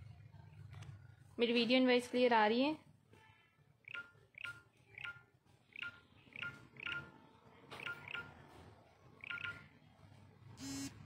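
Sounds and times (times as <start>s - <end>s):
electronic chirp-beeps: 3.8s - 7.1s, 7.8s - 8.4s, 9.2s - 9.7s.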